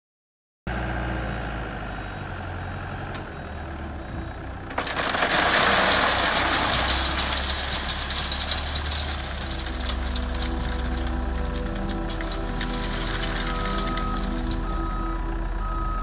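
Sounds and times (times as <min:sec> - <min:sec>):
diesel engine running: 0:00.7 - 0:16.0
gravel pouring into trailer: 0:04.6 - 0:16.0.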